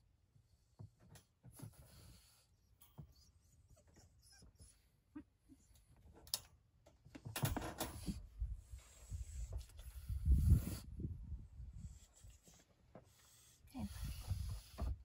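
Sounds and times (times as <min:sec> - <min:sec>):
puppy whimpering: 0:03.1 - 0:05.8.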